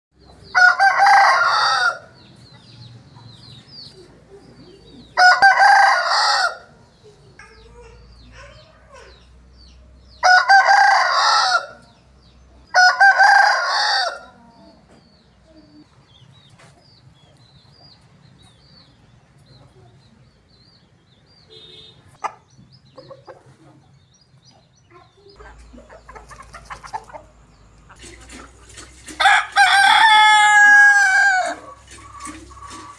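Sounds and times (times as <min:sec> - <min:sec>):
rooster crowing: 0:00.5 - 0:02.2, 0:05.2 - 0:06.7, 0:10.2 - 0:11.8, 0:12.7 - 0:14.4, 0:29.2 - 0:31.8.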